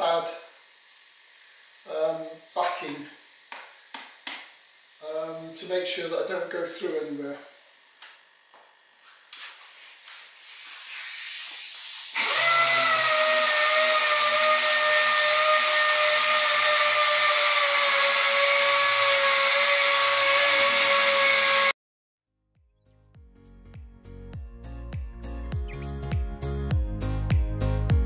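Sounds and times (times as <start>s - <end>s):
air sander whining: 0.0s - 21.8s.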